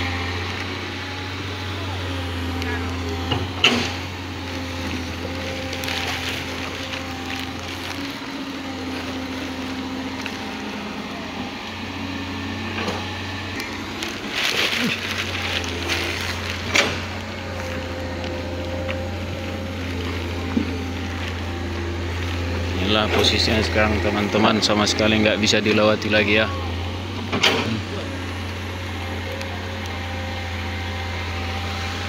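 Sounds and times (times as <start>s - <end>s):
diesel engine running: 0.0s - 32.0s
rock and gravel clattering: 2.6s - 10.7s, 12.8s - 26.4s.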